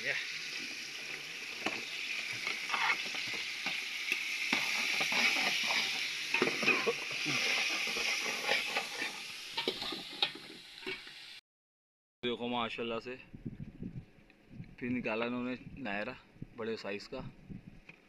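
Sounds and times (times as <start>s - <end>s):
shrimp sizzling in hot oil: 0.0s - 11.4s
utensil clinking and scraping pot: 1.0s - 11.1s.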